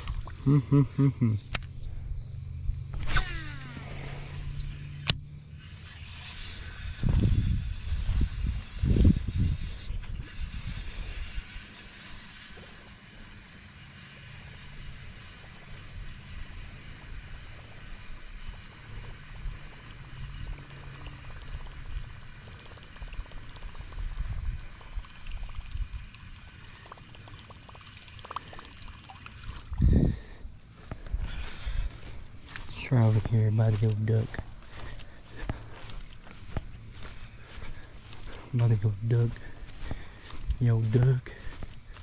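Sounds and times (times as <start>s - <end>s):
insects droning: 0.0s - 42.0s
water trickling and gurgling: 20.5s - 30.3s.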